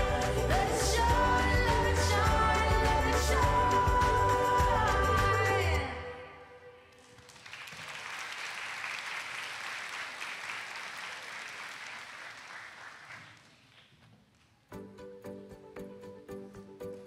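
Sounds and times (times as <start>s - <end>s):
audience applauding: 7.0s - 14.0s.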